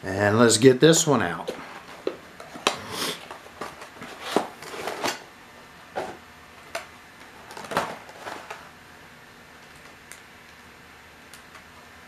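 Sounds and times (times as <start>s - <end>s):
packaging rustling: 1.5s - 5.2s, 7.2s - 8.7s
packaging clicks and knocks: 6.8s - 8.6s.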